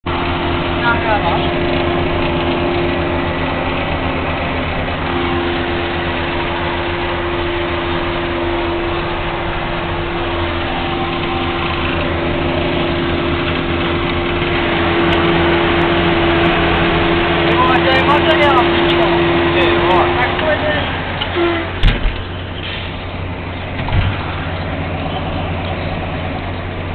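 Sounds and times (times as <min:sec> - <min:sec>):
forage harvester working: 0:00.0 - 0:26.9
tractor engine drone: 0:00.0 - 0:26.9.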